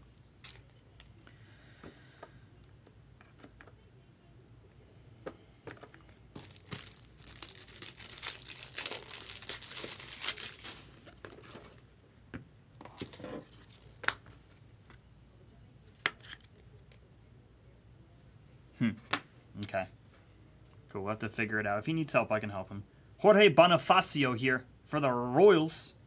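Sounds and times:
plastic crinkling and rustling: 6.3s - 11.9s, 12.9s - 14.4s.

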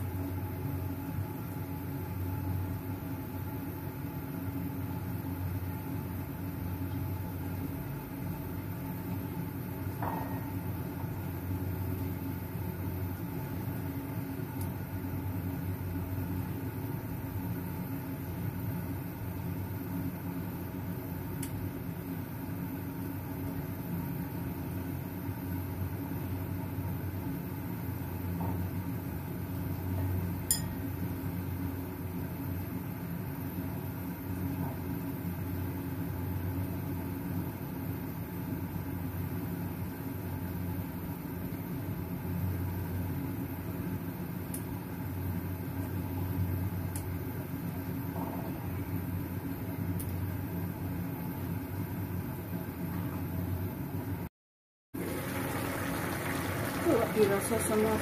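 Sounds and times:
pot of broth simmering: 55.0s - 58.0s.

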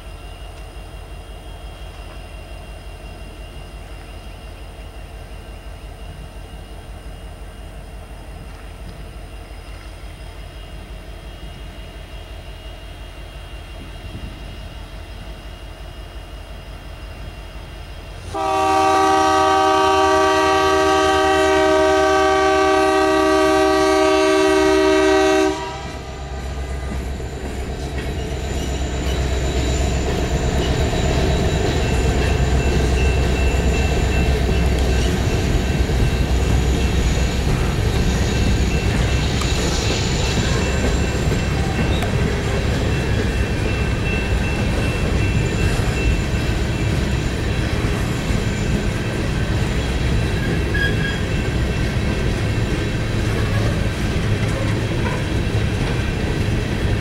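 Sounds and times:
train rumbling on rails: 0.0s - 57.0s
locomotive air horn chord: 18.2s - 26.9s.

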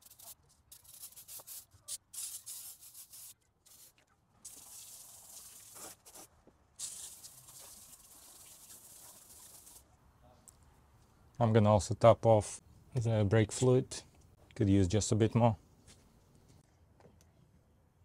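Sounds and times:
hose nozzle spraying water: 4.4s - 9.8s.

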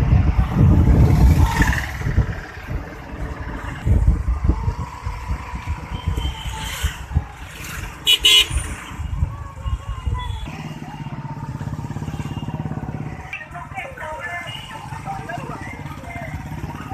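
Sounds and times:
wind buffeting microphone: 0.0s - 10.6s
vehicle engine rumble: 0.0s - 16.9s.

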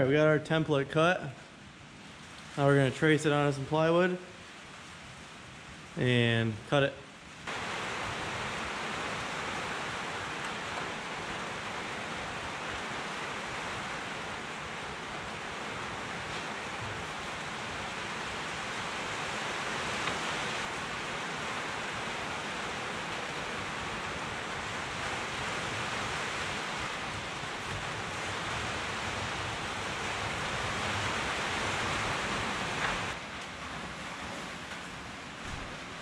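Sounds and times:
steady rushing noise: 0.0s - 36.0s.

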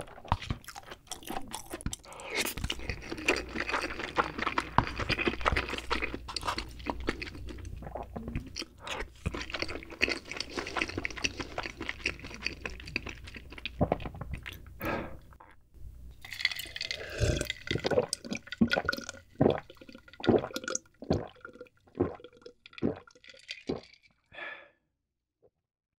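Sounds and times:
close-up chewing: 0.0s - 14.7s
gulps of water: 16.3s - 24.6s.

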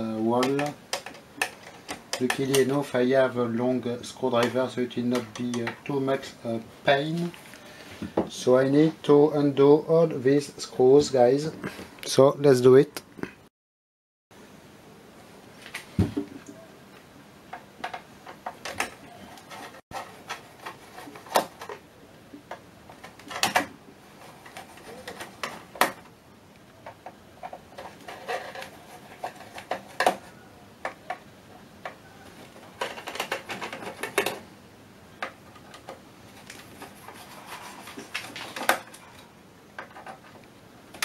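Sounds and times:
screwdriver clicking and scraping metal: 26.9s - 30.2s.

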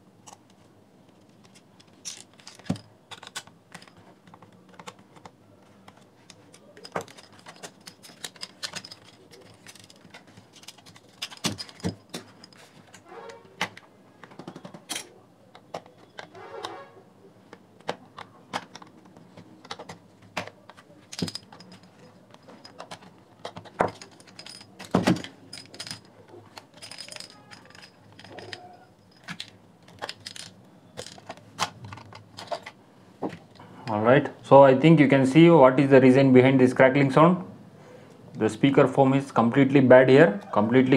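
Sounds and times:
plastic casing clicking and rattling: 1.1s - 13.0s, 17.5s - 32.8s.

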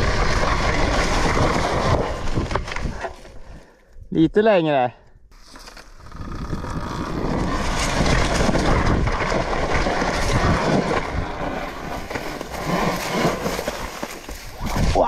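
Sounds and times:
dirt bike rattling over bumps: 0.0s - 3.3s, 5.4s - 15.0s
wind rushing over microphone: 6.0s - 15.0s.

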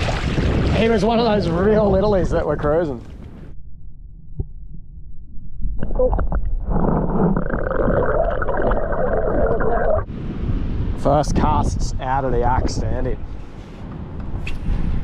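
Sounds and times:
muffled underwater rumble: 3.6s - 10.1s
wind-like open-air hiss: 10.1s - 15.0s.

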